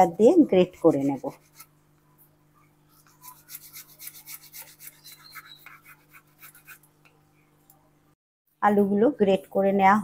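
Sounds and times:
potatoes scraping on grater: 0.5s - 1.6s, 3.2s - 6.8s.

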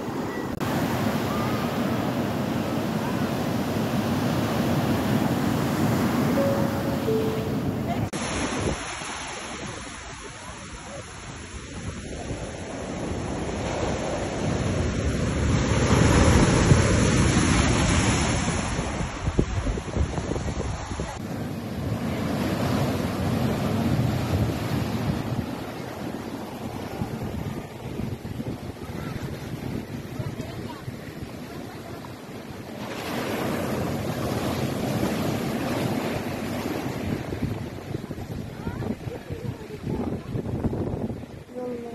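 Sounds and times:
sea surf on rocky shore: 0.0s - 41.9s
wind buffeting microphone: 16.2s - 21.3s, 23.2s - 32.5s, 35.0s - 41.9s.

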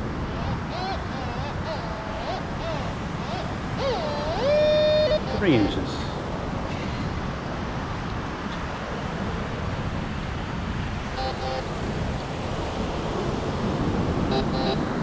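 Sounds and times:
beach wind and surf: 0.0s - 15.0s
metal detector beeping: 3.3s - 5.6s, 14.3s - 14.8s.

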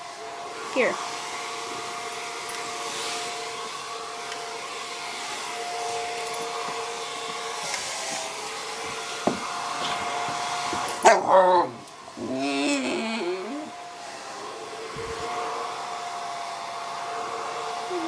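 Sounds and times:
hair dryer blowing: 0.0s - 18.0s
puppy barking: 11.0s - 11.7s.

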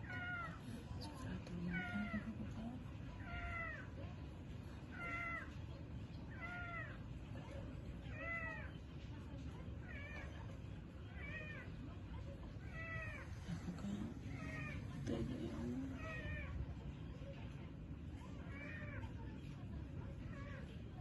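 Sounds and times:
cat meowing: 0.0s - 0.6s, 3.2s - 4.0s, 4.9s - 5.6s, 6.3s - 7.1s, 8.1s - 8.8s, 9.8s - 11.8s, 12.6s - 15.2s, 15.9s - 16.7s, 18.3s - 19.2s.

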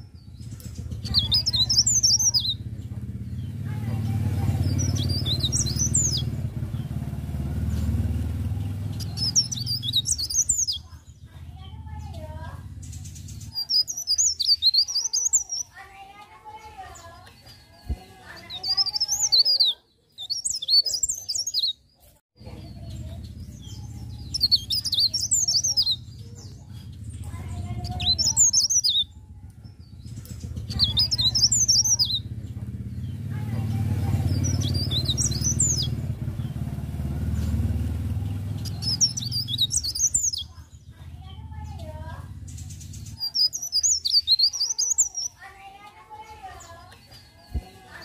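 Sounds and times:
steady low rumble: 0.0s - 14.0s, 22.4s - 44.1s
songbird chirping and trilling: 0.0s - 48.0s.

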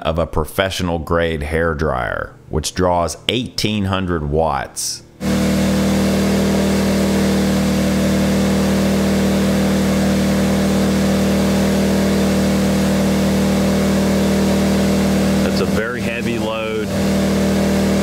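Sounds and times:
generator engine running: 5.2s - 18.0s.

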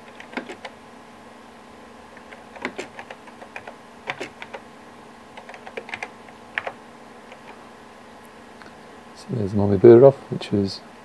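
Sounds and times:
computer keyboard typing: 0.0s - 0.7s, 2.1s - 4.7s, 5.3s - 7.6s
faint steady hum: 0.0s - 11.0s.

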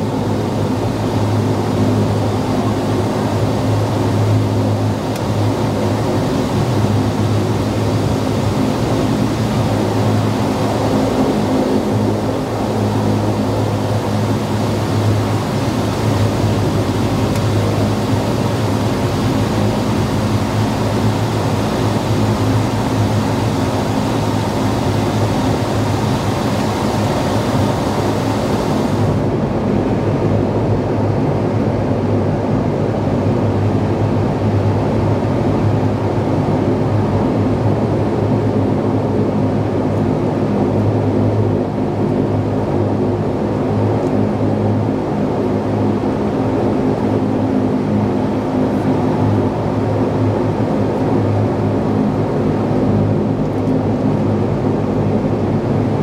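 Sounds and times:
turboprop cabin drone: 0.0s - 56.0s
hiss above hum: 0.1s - 29.4s.

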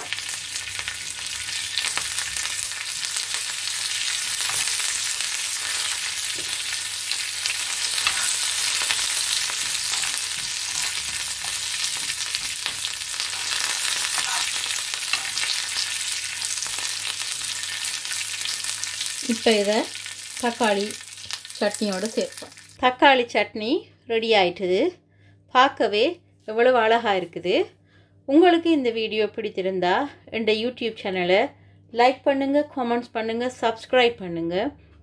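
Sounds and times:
spices sizzling in hot oil: 0.0s - 22.8s.

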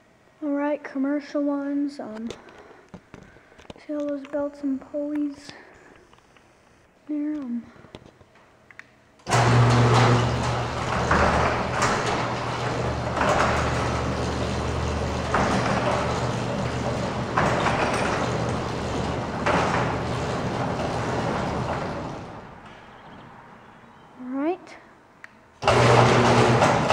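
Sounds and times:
garage door opener running: 9.2s - 23.3s, 25.6s - 26.9s.

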